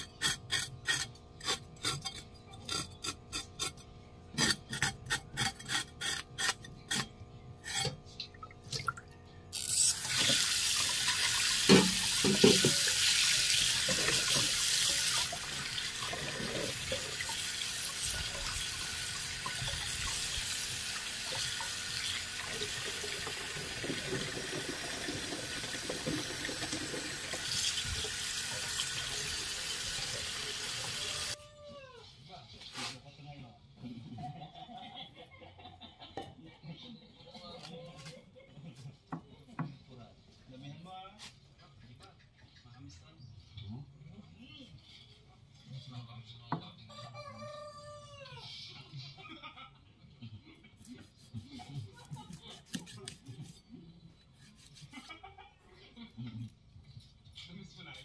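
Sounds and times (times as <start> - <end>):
cleaver scraping fish scales: 4.4 - 8.0
tap running into steel basin: 10.0 - 17.4.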